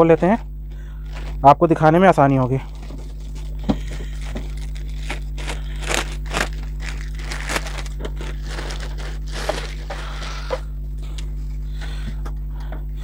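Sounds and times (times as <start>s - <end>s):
steady low hum: 0.0s - 13.0s
plastic bag crinkling: 2.7s - 10.3s.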